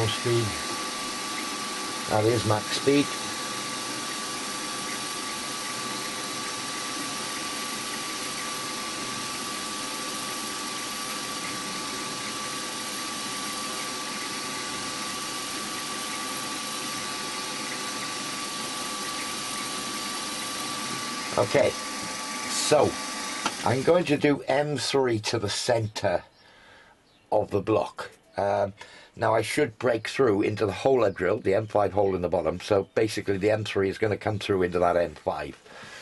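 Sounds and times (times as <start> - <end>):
drill cutting workpiece: 0.0 - 24.2
milling machine spindle whine: 0.0 - 24.3.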